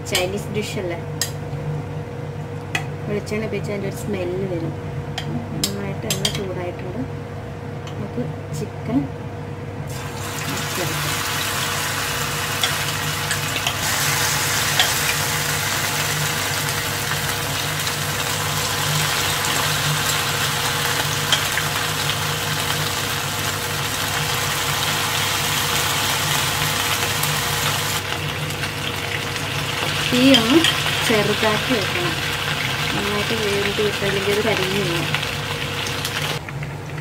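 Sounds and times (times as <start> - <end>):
chicken deep-frying in oil: 9.9 - 37.0
person speaking: 10.5 - 11.2, 32.9 - 35.1.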